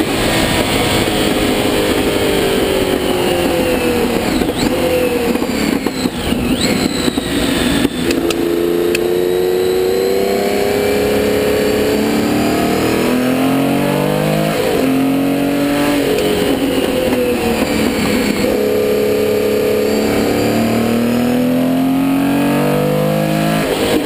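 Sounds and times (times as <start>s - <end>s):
gear changes: 0.0s - 24.0s
racing engine accelerating: 0.0s - 24.0s.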